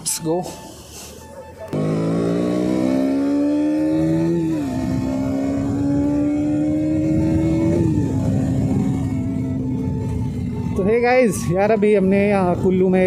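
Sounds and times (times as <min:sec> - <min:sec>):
motorcycle engine accelerating: 0:01.7 - 0:10.8.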